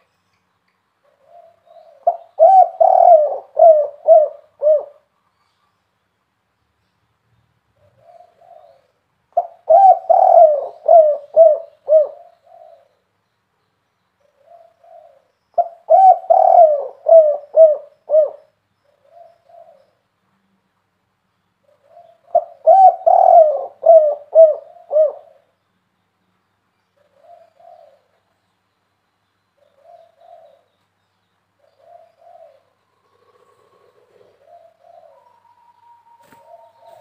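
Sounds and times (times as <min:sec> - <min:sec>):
dove cooing: 0:01.0 - 0:05.1, 0:07.8 - 0:13.0, 0:14.2 - 0:19.9, 0:21.6 - 0:25.5, 0:27.0 - 0:28.2, 0:29.6 - 0:30.7, 0:31.6 - 0:37.0.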